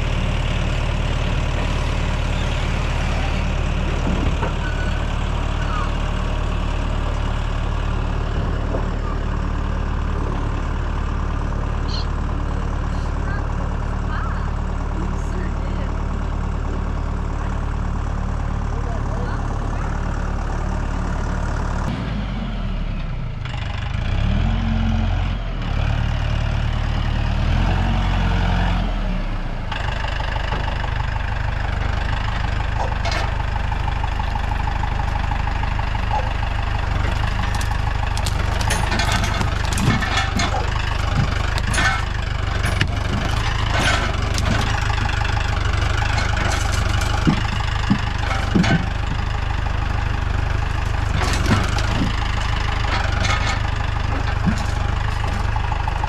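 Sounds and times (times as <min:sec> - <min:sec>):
tractor diesel engine running: 0:00.0 - 0:56.0
grapple knocking logs: 0:32.7 - 0:56.0.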